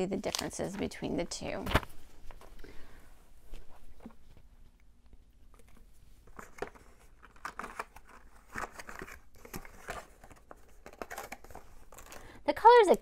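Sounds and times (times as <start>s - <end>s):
cardboard rustling: 6.2s - 12.2s.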